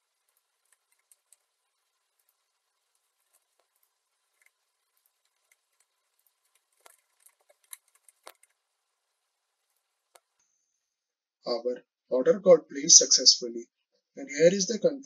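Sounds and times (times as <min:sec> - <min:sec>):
keyboard typing: 0:00.0 - 0:01.6, 0:02.2 - 0:08.6.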